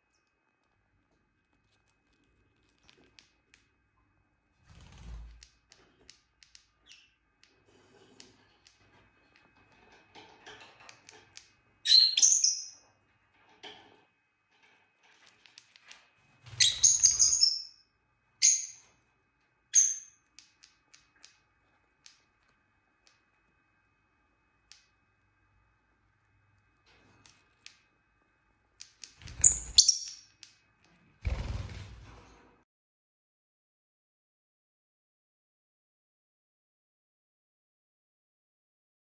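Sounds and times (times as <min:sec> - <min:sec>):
lovebirds chirping: 0:06.0 - 0:07.2, 0:16.5 - 0:17.8, 0:29.0 - 0:30.5.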